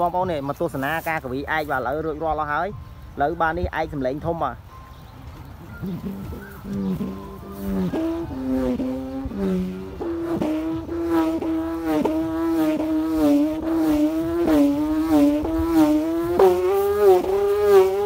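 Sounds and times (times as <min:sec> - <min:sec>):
whirled kite hummer buzzing drone: 0:05.5 - 0:18.0.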